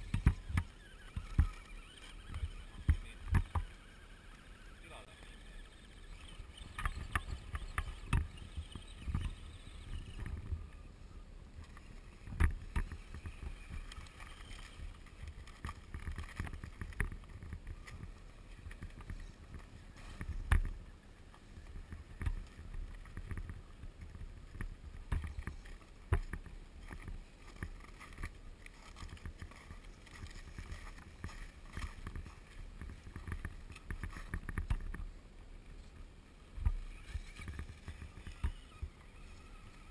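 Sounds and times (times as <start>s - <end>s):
electric motors and gears whining: 0.0s - 28.4s, 36.6s - 39.9s
wind rumbling on microphone: 0.0s - 39.9s.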